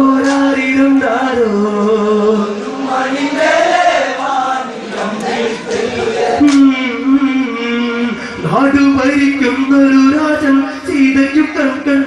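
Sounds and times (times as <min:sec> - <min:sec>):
men singing in unison: 0:00.0 - 0:07.2.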